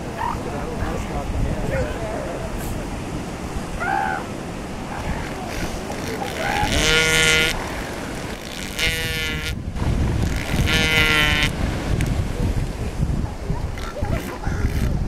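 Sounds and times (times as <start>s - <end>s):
elephant seal bawling: 0.0s - 0.5s, 3.8s - 9.0s, 13.6s - 15.0s.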